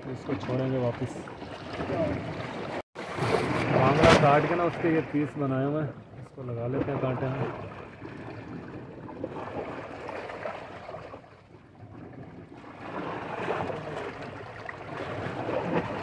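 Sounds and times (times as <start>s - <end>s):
sea waves washing on shore: 0.0s - 5.5s, 12.6s - 16.0s.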